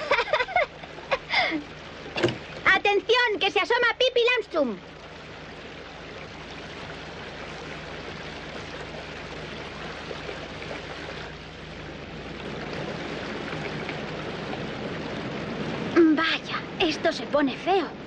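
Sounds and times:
rushing river water: 0:00.0 - 0:18.0.

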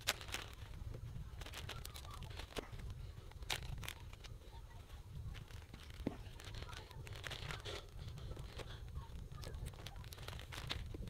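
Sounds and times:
plastic packaging crinkling: 0:00.0 - 0:04.3, 0:05.2 - 0:11.0
sharp crackles and clicks: 0:00.0 - 0:04.4, 0:05.2 - 0:11.0.

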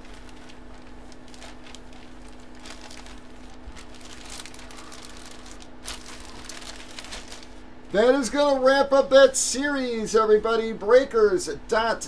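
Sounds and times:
faint rustling: 0:00.0 - 0:08.0
low electrical hum: 0:00.0 - 0:12.0.

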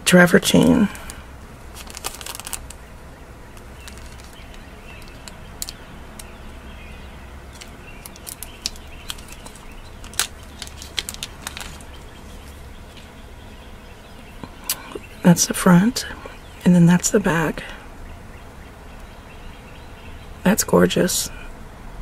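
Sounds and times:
low steady hum: 0:00.0 - 0:22.0
plastic bag crinkling: 0:00.9 - 0:02.9, 0:03.5 - 0:06.6, 0:07.5 - 0:13.2.

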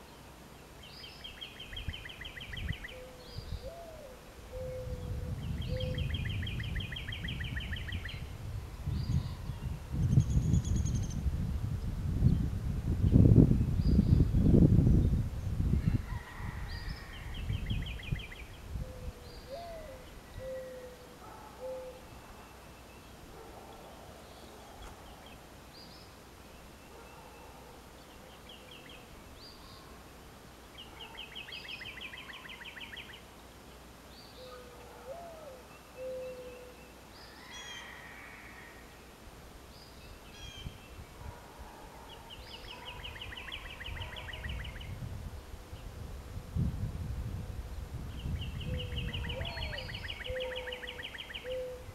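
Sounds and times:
songbirds singing: 0:00.0 - 0:46.0, 0:47.6 - 0:51.9
low rumbling wind: 0:01.2 - 0:22.5, 0:37.2 - 0:51.9
mourning dove cooing: 0:02.1 - 0:08.0, 0:18.7 - 0:22.6, 0:34.4 - 0:38.9, 0:48.6 - 0:51.9.

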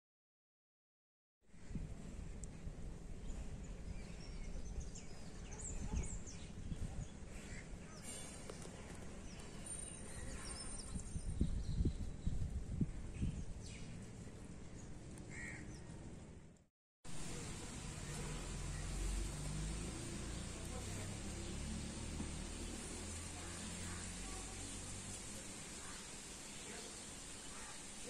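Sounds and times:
wind rumble on microphone: 0:01.6 - 0:07.9, 0:10.2 - 0:14.9
birds chirping faintly: 0:17.2 - 0:28.0.

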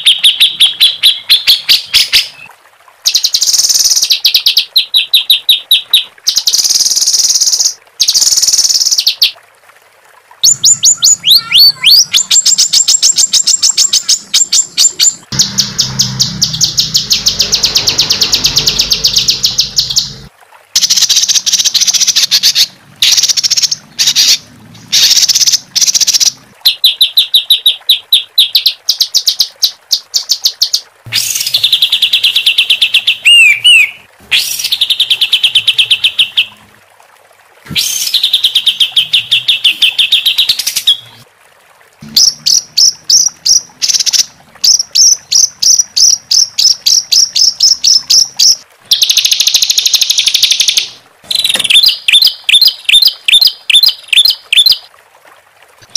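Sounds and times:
songbird singing harsh trills: 0:10.4 - 0:20.3, 0:31.1 - 0:36.4.

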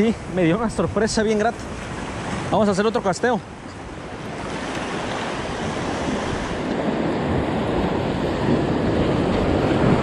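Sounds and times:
wind buffeting microphone: 0:00.0 - 0:10.0
surf breaking on rocks: 0:04.0 - 0:10.0.

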